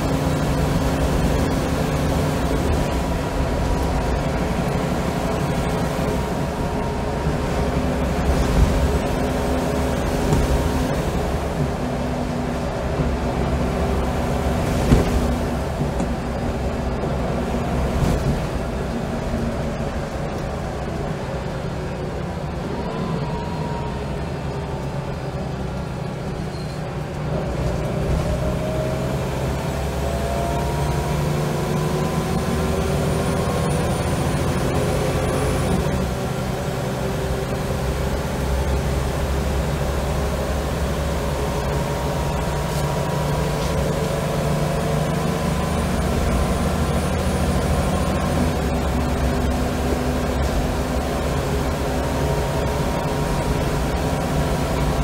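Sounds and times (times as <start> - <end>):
steady low rumble: 0.0 - 22.9
bus engine and gearbox whine: 0.0 - 55.0.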